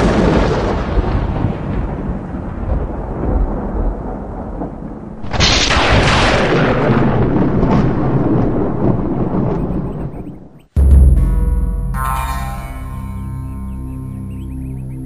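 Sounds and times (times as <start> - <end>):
sharp crack and rumble: 0.0 - 10.0
thunder-like rumbling boom: 0.0 - 12.0.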